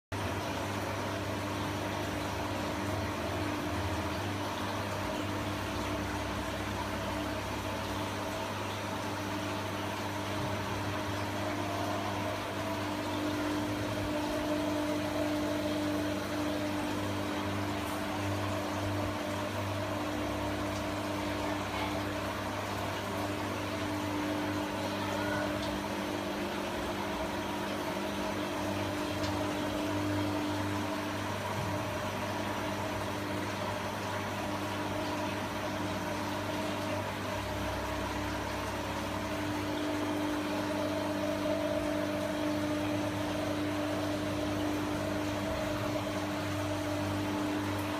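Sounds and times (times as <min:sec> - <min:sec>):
aquarium equipment humming: 0:00.1 - 0:47.9.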